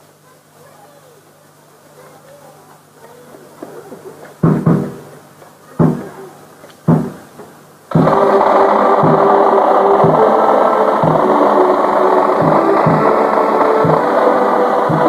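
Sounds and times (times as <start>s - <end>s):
bass drum beating: 4.4s - 5.1s, 5.8s - 6.1s, 6.9s - 7.3s, 7.9s - 15.0s
accordion band playing: 7.9s - 15.0s.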